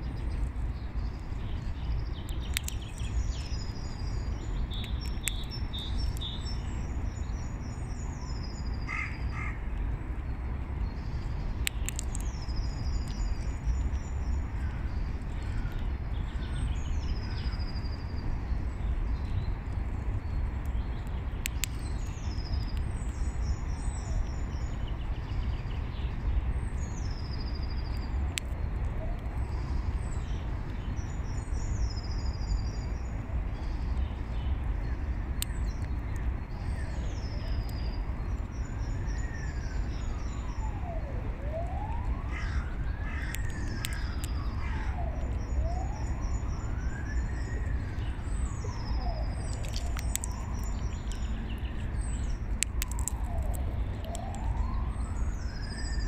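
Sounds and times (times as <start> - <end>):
low background rumble: 0.0 - 55.7
songbird singing: 0.0 - 56.0.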